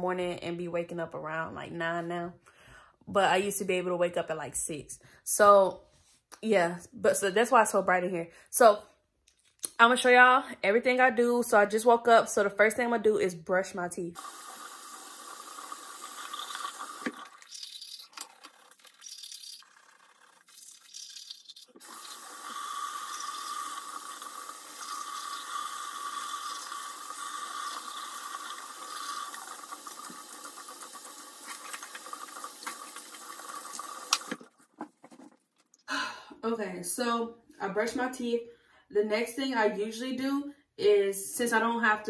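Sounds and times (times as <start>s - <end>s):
tap water running into sink: 14.2s - 19.6s, 20.7s - 34.5s.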